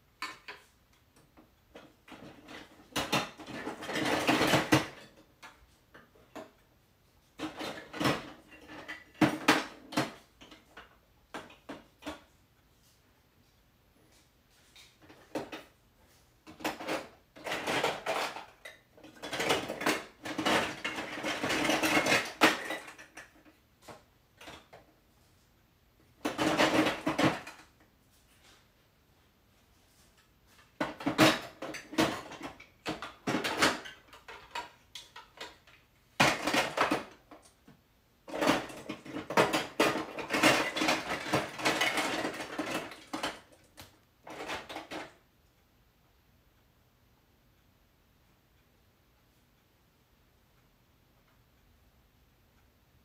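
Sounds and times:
plastic pieces clattering: 0:16.5 - 0:23.3, 0:26.2 - 0:27.6, 0:30.8 - 0:37.2, 0:38.3 - 0:45.1.

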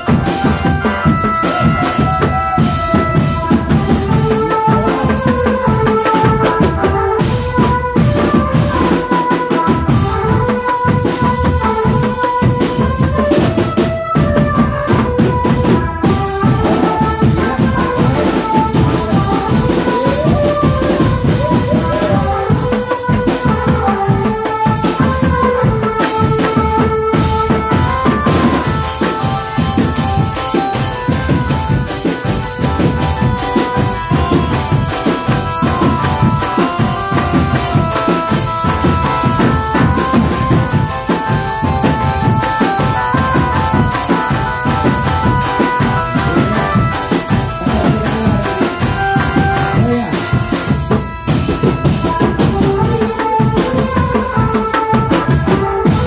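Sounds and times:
marching drums: 0:00.0 - 0:56.0
melody line: 0:16.0 - 0:55.2.

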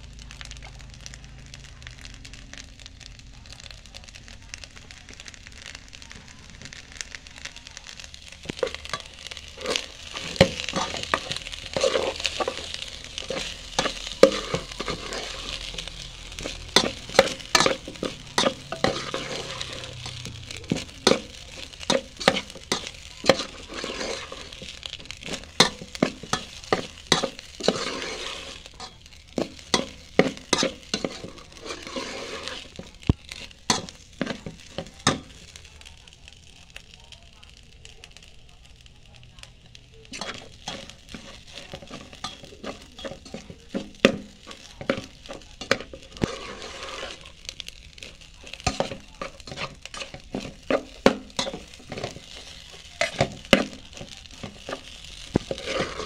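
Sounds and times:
rice sizzling in a pan: 0:00.0 - 0:56.0
metal spoon clacking against pan: 0:08.5 - 0:35.4, 0:40.1 - 0:47.2, 0:48.1 - 0:56.0.

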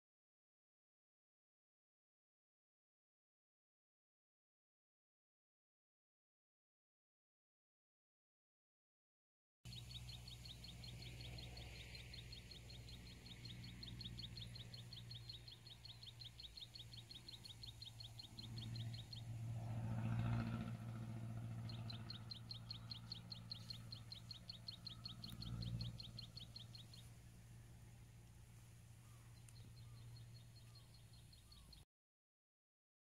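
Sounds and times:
low steady rumble: 0:09.7 - 0:31.8
high rapid chirping call: 0:21.5 - 0:27.3.

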